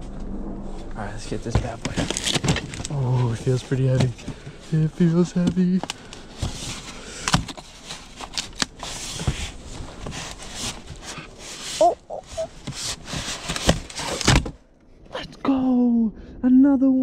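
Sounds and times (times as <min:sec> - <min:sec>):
box rustling and scraping: 0:01.3 - 0:14.6.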